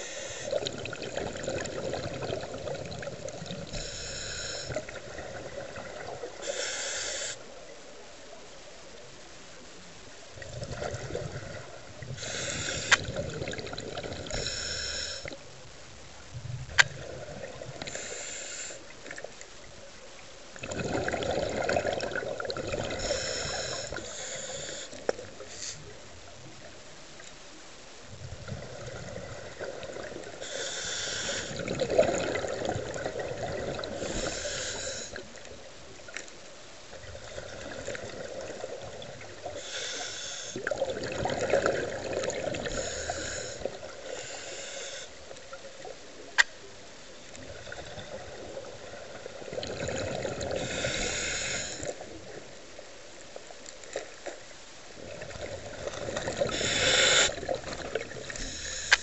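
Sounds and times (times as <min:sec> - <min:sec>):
regulator hiss: 0:00.0 - 0:00.6, 0:03.7 - 0:04.9, 0:06.4 - 0:07.5, 0:12.0 - 0:13.1, 0:14.3 - 0:15.4, 0:17.8 - 0:19.0, 0:23.0 - 0:26.0, 0:30.3 - 0:31.7, 0:34.0 - 0:35.3, 0:39.4 - 0:40.7, 0:42.6 - 0:45.3, 0:50.6 - 0:52.0, 0:56.5 - 0:57.5, 0:58.2 - 0:59.0
bubbling exhaled air: 0:00.0 - 0:07.3, 0:10.4 - 0:15.4, 0:20.6 - 0:25.8, 0:28.2 - 0:35.4, 0:37.0 - 0:45.1, 0:47.4 - 0:52.1, 0:55.0 - 0:59.0.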